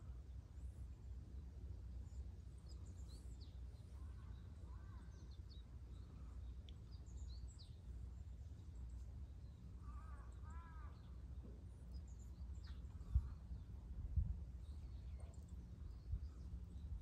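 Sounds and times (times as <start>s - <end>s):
small birds chirping: 0.0s - 17.0s
steady low rumble: 0.0s - 17.0s
distant crow cawing: 9.8s - 11.1s.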